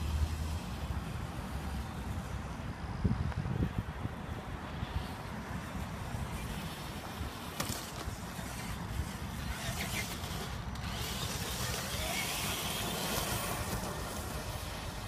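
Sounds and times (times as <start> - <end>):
faint motor whine: 0.0 - 15.0
wind rumbling on microphone: 0.0 - 15.0.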